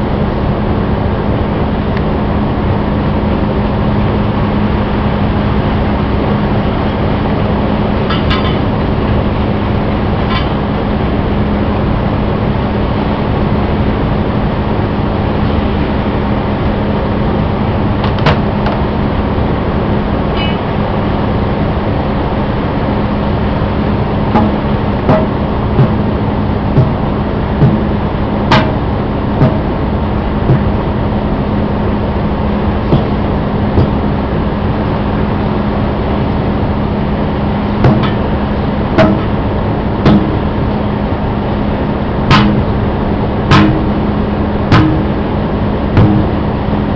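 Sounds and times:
machinery drone: 0.0 - 46.9
hammer striking metal rim: 8.1 - 8.7, 20.4 - 20.7, 24.4 - 26.1, 26.8 - 27.0, 27.6 - 29.7, 30.5 - 30.8, 32.9 - 33.2, 33.8 - 34.1, 37.8 - 38.3, 39.0 - 39.4, 40.0 - 40.5, 42.3 - 42.8, 43.5 - 44.0, 44.7 - 45.2, 46.0 - 46.4
ringing metallic ping: 8.1 - 8.7, 20.4 - 20.7.

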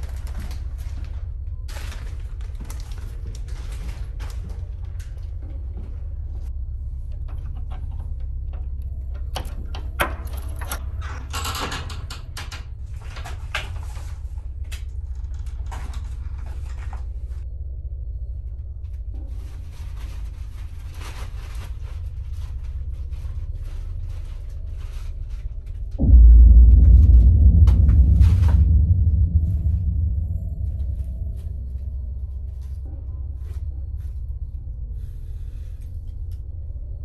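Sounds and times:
steady low hum: 0.0 - 37.0
objects clattering and rattling: 7.1 - 14.4.

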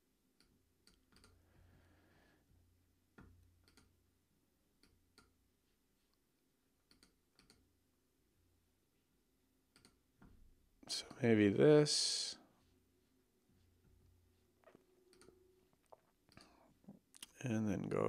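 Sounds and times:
computer mouse clicks: 0.4 - 1.4, 3.6 - 3.9, 6.8 - 7.6, 9.7 - 10.0.

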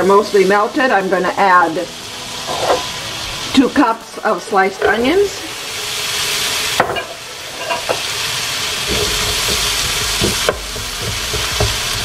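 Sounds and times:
onions sizzling in butter: 0.0 - 12.0
wooden spoon knocking pan: 8.9 - 12.0.

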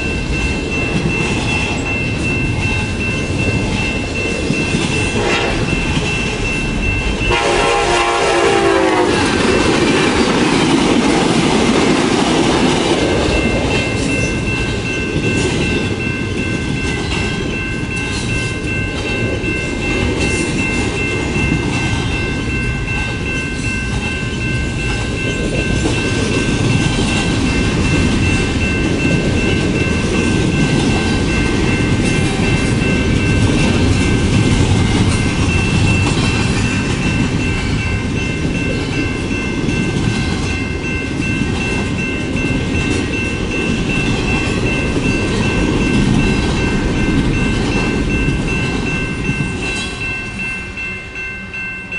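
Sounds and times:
freight train wheels on rails: 0.0 - 51.9
train horn: 5.1 - 5.7, 7.3 - 9.3.

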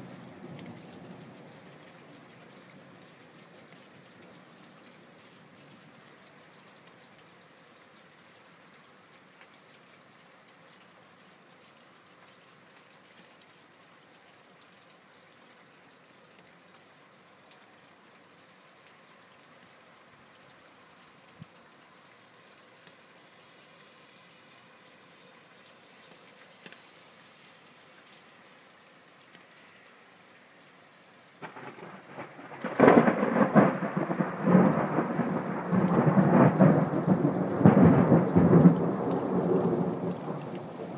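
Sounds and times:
rain hissing: 0.0 - 40.9
close thunderclap: 31.4 - 40.9.

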